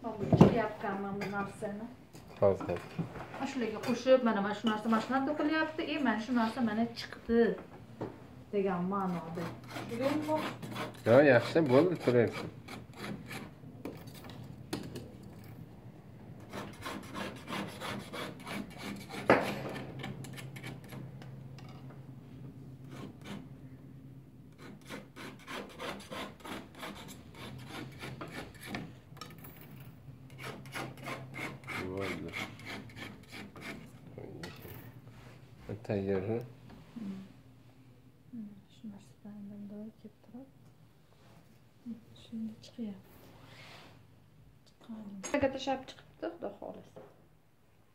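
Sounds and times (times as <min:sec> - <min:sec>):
faint low hum: 0:31.6 - 0:43.5.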